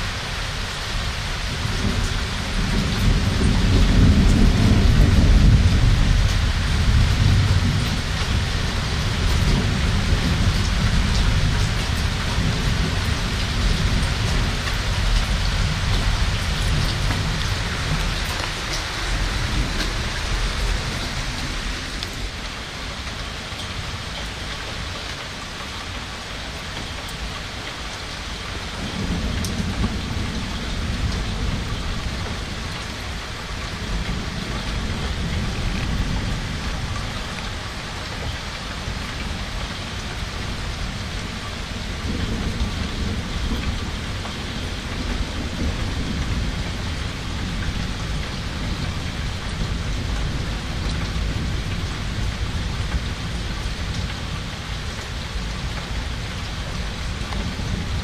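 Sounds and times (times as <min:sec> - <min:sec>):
thunder rumbling: 0:00.0 - 0:25.0, 0:28.5 - 0:58.0
heavy rain pattering: 0:00.0 - 0:58.0.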